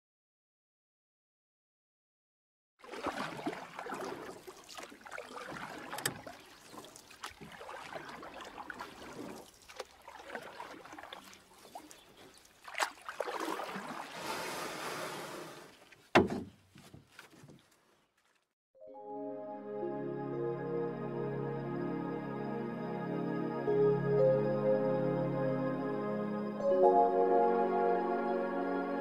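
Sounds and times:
kayak paddle splashing water: 2.8s - 16.2s.

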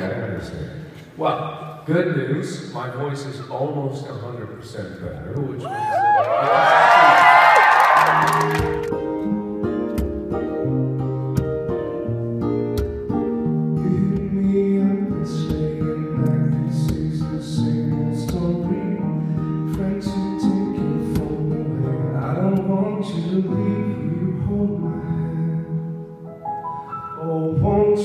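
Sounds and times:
acoustic guitar picking and strumming: 8.3s - 26.5s
man singing into a microphone: 13.6s - 26.2s, 27.0s - 28.0s.

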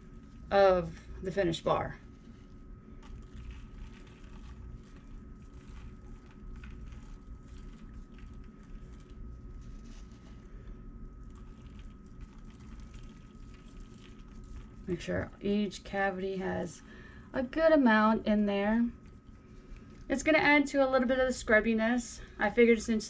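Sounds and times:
steady low hum: 0.0s - 23.0s
salt grains ticking: 2.0s - 15.2s, 18.4s - 21.6s.

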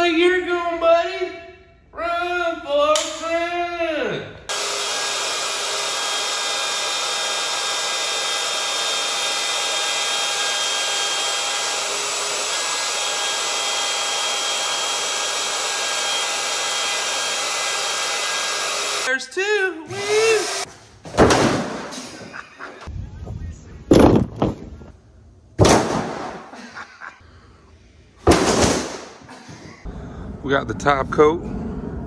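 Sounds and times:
electric router whining: 4.5s - 19.1s
loud thump: 21.1s - 22.0s, 23.9s - 24.9s, 25.6s - 26.5s, 28.2s - 29.1s.

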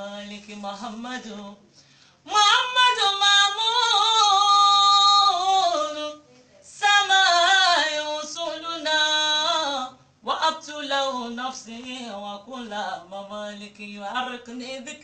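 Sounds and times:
woman singing unaccompanied: 0.0s - 1.6s, 2.2s - 15.0s.

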